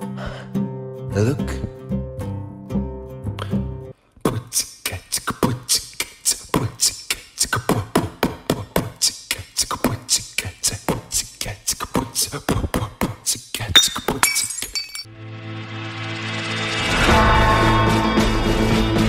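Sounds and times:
background music: 0.0s - 4.0s, 15.1s - 19.0s
man beatboxing: 4.2s - 13.8s.

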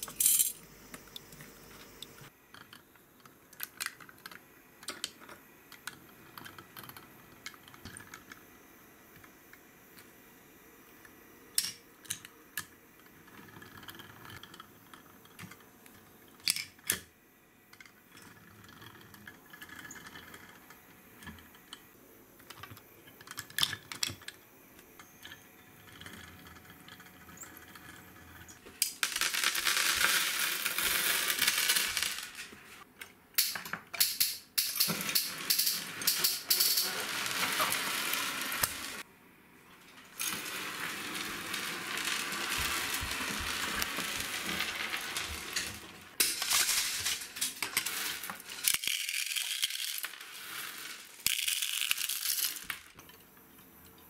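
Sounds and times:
gravel clattering into plastic truck: 40.1s - 52.8s.

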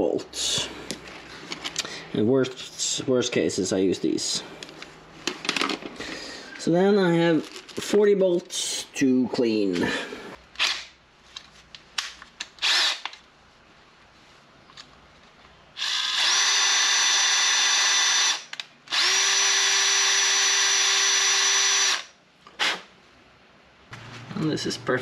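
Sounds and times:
power drill with wire brush: 12.6s - 13.0s, 15.8s - 22.1s.

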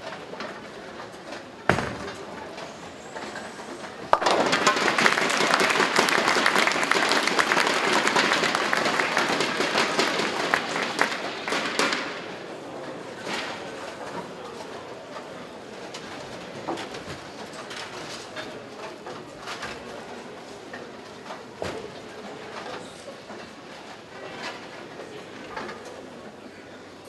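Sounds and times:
bowling ball thud on lane: 4.1s - 5.1s
bowling pins crashing: 4.1s - 8.7s
crowd applauding: 4.1s - 12.0s.

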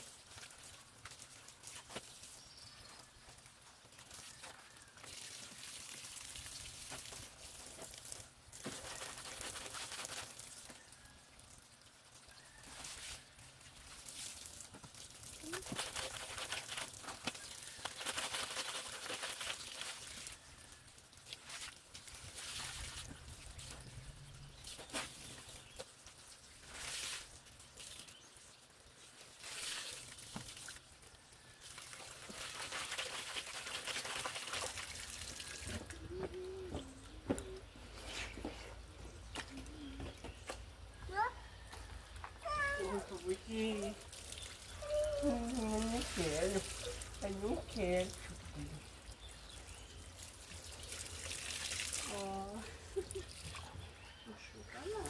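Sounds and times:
wet laundry scrubbed in washtub: 4.0s - 10.6s, 12.4s - 25.8s, 26.5s - 28.0s, 31.5s - 36.2s, 42.4s - 53.8s.

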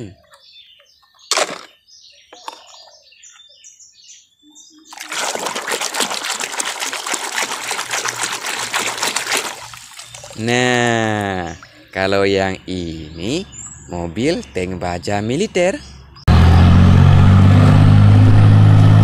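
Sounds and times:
hand splashing in water: 4.9s - 11.7s.

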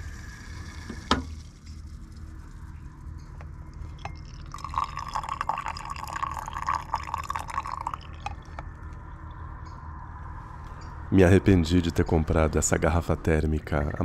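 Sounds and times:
low steady hum: 0.0s - 14.0s
coffee trickling into mug: 3.8s - 8.7s.

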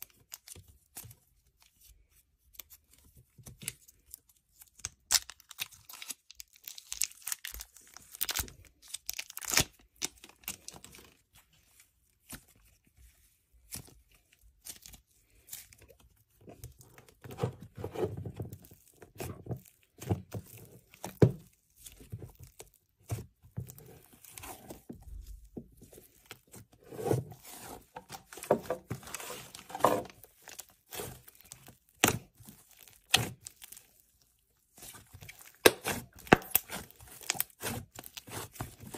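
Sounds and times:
plastic packet crinkling and tearing: 4.6s - 11.2s.

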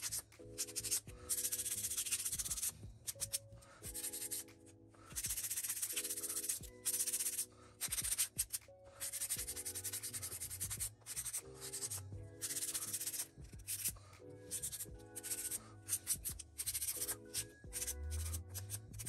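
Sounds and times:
background music: 0.0s - 19.0s
nail file rasping: 0.0s - 19.0s.

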